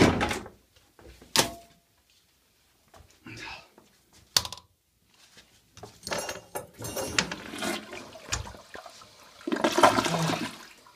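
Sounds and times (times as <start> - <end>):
toilet flushing: 7.1 - 10.9.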